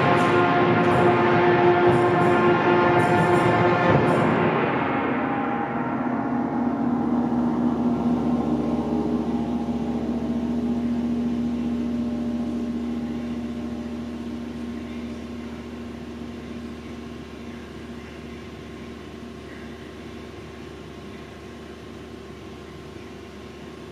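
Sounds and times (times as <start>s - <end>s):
wind ensemble chord ringing: 0.0s - 14.1s
faint room hum: 0.0s - 23.9s.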